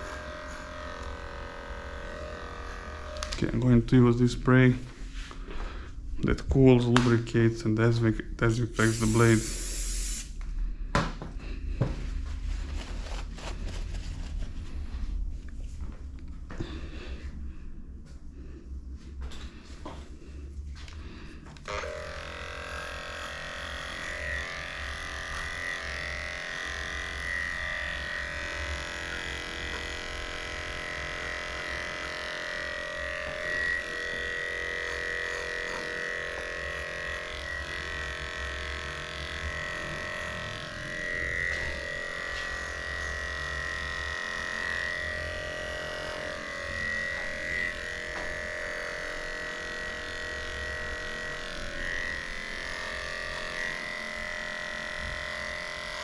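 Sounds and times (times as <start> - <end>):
electric clippers whining: 0.0 - 4.4, 20.9 - 56.0.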